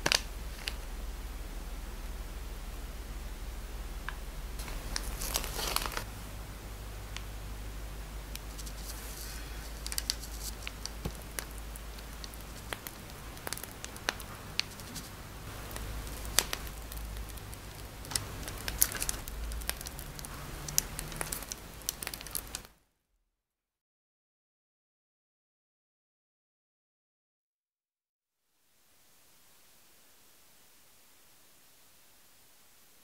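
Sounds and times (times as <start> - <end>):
plastic bag crinkling: 0.0 - 0.9, 4.6 - 6.1, 8.2 - 22.7
low steady hum: 0.0 - 22.7.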